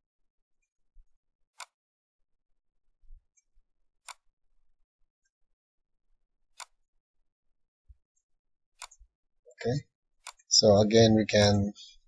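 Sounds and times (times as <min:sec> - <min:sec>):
computer mouse clicks: 0:01.5 - 0:01.8, 0:03.4 - 0:04.3, 0:06.5 - 0:06.8, 0:08.8 - 0:09.1, 0:10.2 - 0:10.5.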